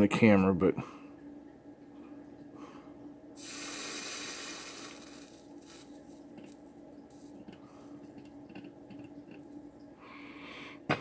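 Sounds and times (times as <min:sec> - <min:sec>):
faint low hum: 0:00.0 - 0:11.0
flux sizzling under soldering iron: 0:03.4 - 0:07.5.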